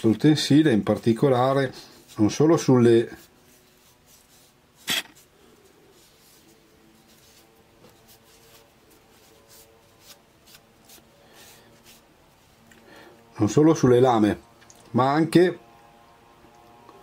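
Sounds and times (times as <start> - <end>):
cotton pad rubbing on scissors: 0.3 - 12.6.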